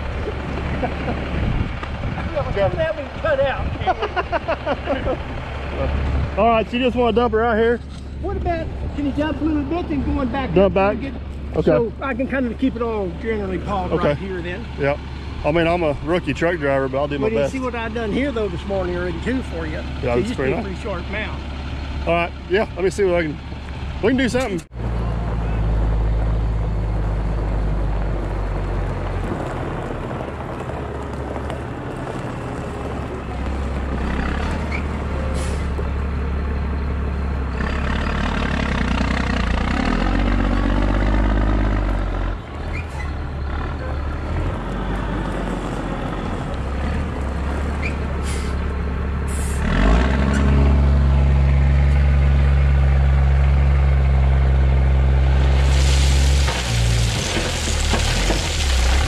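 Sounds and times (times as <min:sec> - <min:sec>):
diesel truck engine running: 0:00.0 - 0:59.0
short air hisses: 0:48.2 - 0:48.6.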